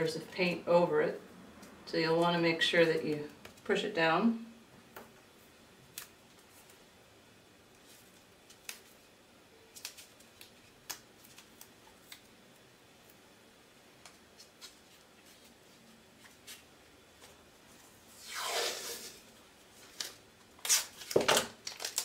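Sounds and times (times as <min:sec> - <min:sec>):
tape pulled off roll: 0:18.2 - 0:19.3.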